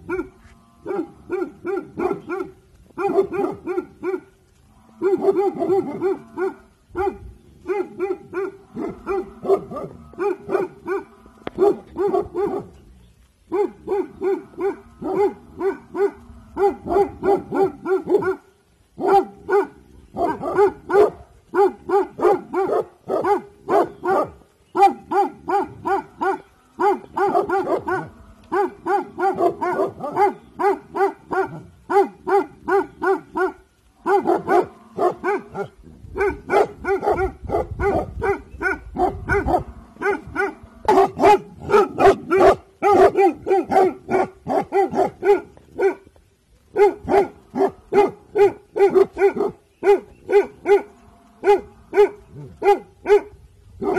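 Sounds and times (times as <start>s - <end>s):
dogs barking rapidly: 0.0s - 4.4s, 5.0s - 12.8s, 13.5s - 53.9s.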